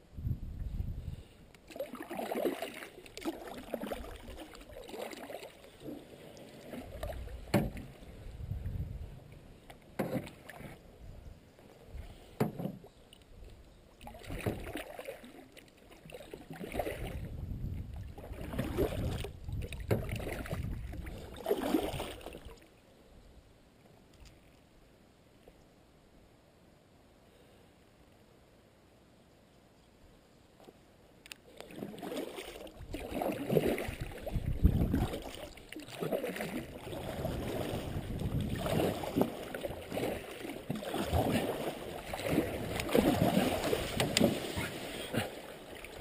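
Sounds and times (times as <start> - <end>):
paddle splashing in water: 1.6 - 8.1, 9.9 - 10.8, 14.0 - 17.3, 18.0 - 22.6, 31.5 - 46.0.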